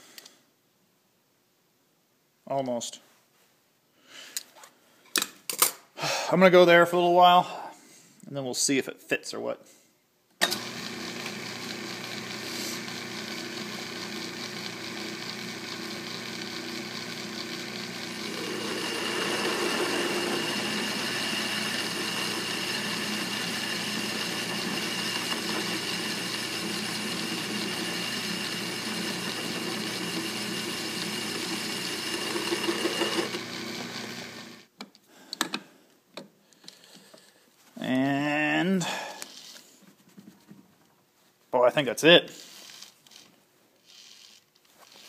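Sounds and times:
lathe motor and gear hum: 10.5 - 34.6
lathe tool cutting with whine: 10.5 - 34.6.

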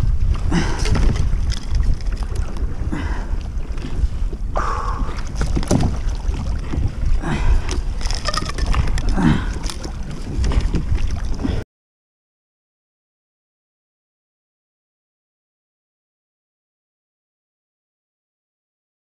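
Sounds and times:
water splashing against hull: 0.0 - 11.6
wind buffeting microphone: 0.0 - 11.6.

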